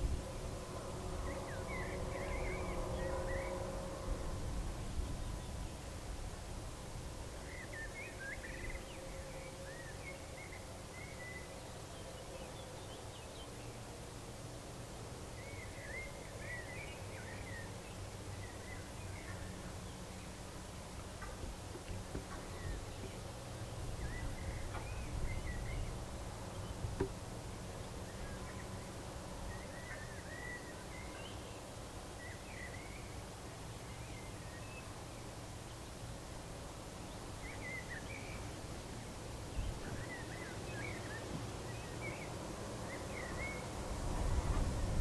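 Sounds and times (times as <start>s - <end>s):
low steady rumble: 0.0s - 11.1s
distant songbirds chirping: 0.0s - 45.0s.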